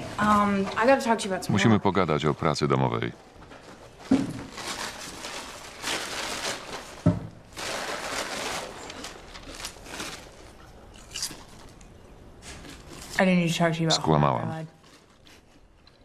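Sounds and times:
paper bag rustling: 0:03.6 - 0:10.7
chip bag crinkling: 0:04.4 - 0:11.8.

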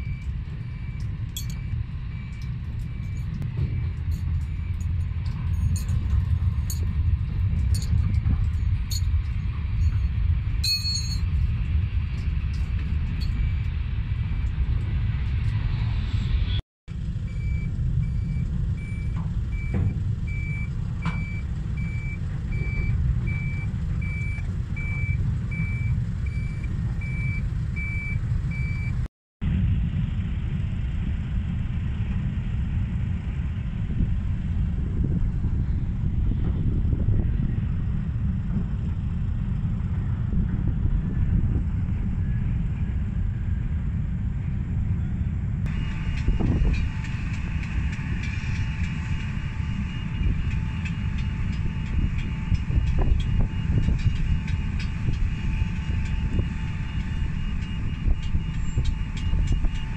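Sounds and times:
vehicle reversing beeper: 0:00.0 - 0:06.6, 0:13.1 - 0:14.8, 0:17.2 - 0:29.1, 0:45.0 - 0:59.9
low rumble: 0:00.0 - 0:59.9.

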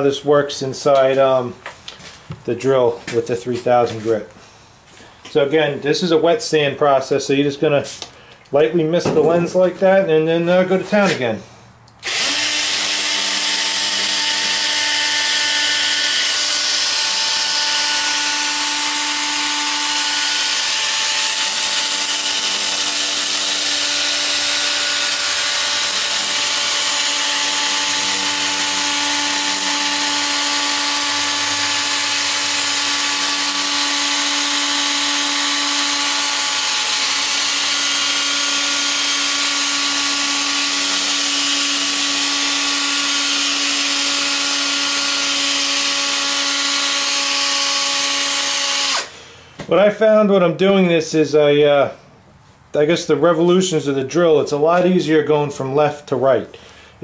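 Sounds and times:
drill motor whine: 0:12.0 - 0:49.1.

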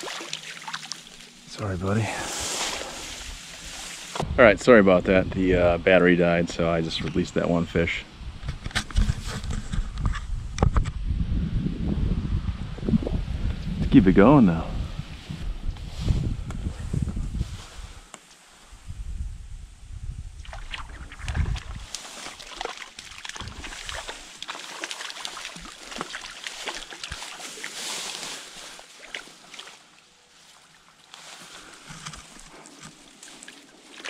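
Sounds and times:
water splashing in stream: 0:00.0 - 0:01.5, 0:20.4 - 0:31.2, 0:32.8 - 0:34.0.

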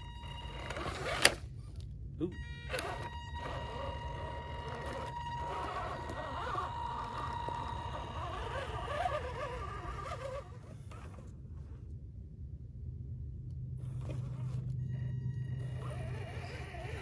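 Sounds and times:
toy car electric motor whining: 0:00.0 - 0:01.4, 0:02.4 - 0:11.3, 0:14.0 - 0:17.0
steady low rumble: 0:00.0 - 0:17.0.

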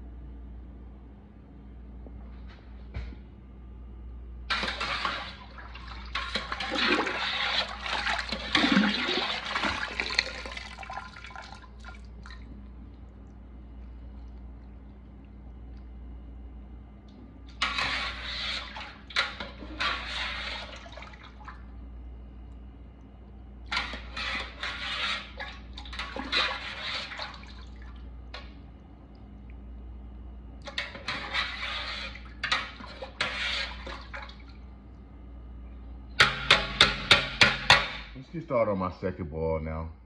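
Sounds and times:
steady low hum: 0:00.0 - 0:40.0
water splashing and draining: 0:04.5 - 0:16.1, 0:17.4 - 0:22.0, 0:23.0 - 0:28.6, 0:30.6 - 0:34.7.

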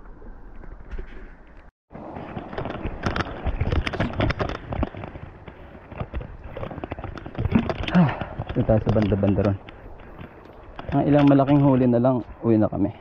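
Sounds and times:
footsteps crunching on rocks: 0:02.0 - 0:11.9.

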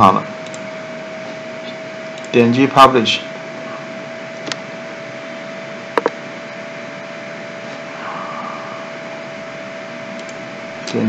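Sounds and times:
faint hum tone: 0:00.0 - 0:11.0
computer mouse clicks: 0:00.4 - 0:00.6, 0:10.1 - 0:11.0.

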